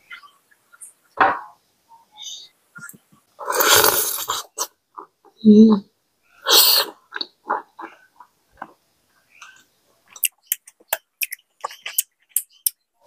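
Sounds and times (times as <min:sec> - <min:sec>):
soft chewing: 0:06.9 - 0:12.8.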